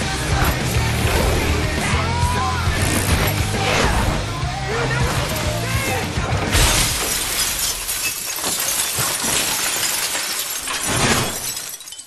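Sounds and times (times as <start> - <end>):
glass window shattering: 6.5 - 12.0
glass shards tinkling: 6.8 - 12.0.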